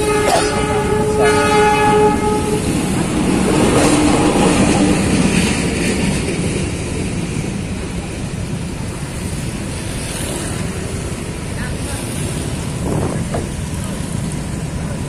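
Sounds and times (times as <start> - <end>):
train horn blast: 0.0 - 3.0
train rumbling past: 0.0 - 15.0.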